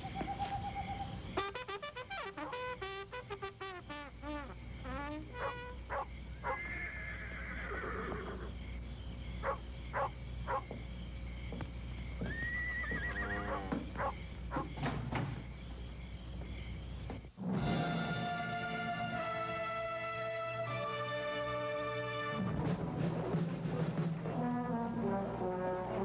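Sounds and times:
horse whinnying: 0:06.4 - 0:08.5, 0:12.2 - 0:13.8.

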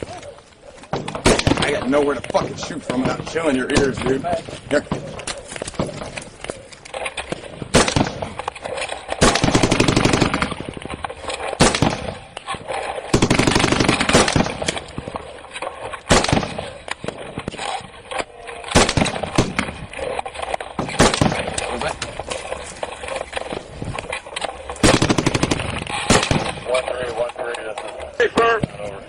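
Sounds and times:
single loud gunshots: 0:01.0 - 0:04.0, 0:07.7 - 0:08.4, 0:18.8 - 0:19.8
automatic gunfire bursts: 0:01.2 - 0:02.0, 0:07.7 - 0:08.4, 0:09.2 - 0:10.9, 0:11.5 - 0:12.3, 0:13.1 - 0:14.9, 0:16.1 - 0:16.9, 0:18.7 - 0:19.8, 0:20.8 - 0:21.8, 0:24.8 - 0:26.7.

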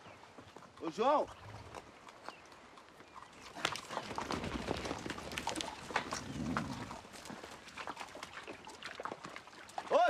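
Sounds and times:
hooves clattering: 0:00.0 - 0:10.0.

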